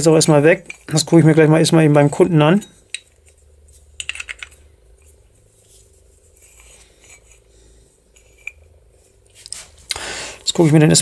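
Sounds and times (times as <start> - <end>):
steady faint hum: 0.0 - 11.0
faint rubs: 5.0 - 7.5.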